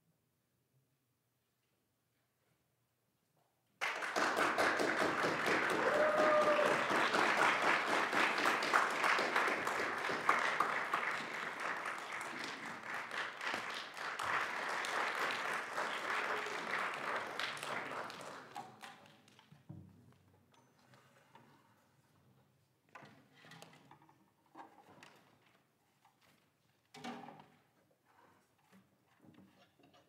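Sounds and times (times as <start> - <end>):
audience applauding: 3.8 - 19.0.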